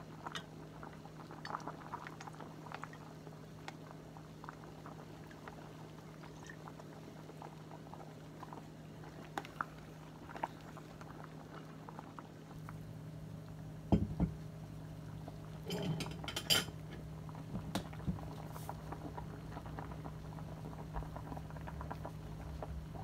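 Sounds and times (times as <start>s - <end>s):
low steady hum: 0.0s - 23.0s
soup boiling and bubbling: 0.0s - 23.0s
knock: 13.9s - 14.4s.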